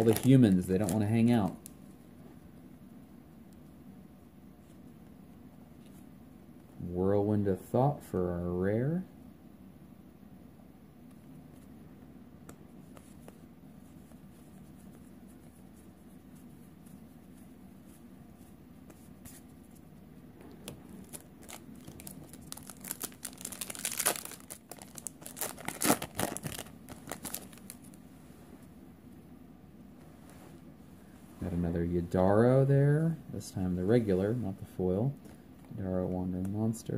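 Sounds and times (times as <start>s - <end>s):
foil wrapper crinkling and tearing: 0.0s - 1.6s, 21.0s - 28.0s
faint card handling: 0.0s - 1.8s, 12.4s - 28.0s.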